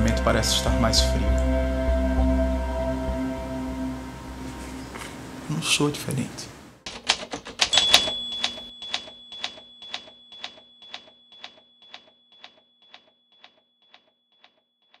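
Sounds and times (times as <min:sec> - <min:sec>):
sharp mechanical clicks: 0:06.9 - 0:15.0.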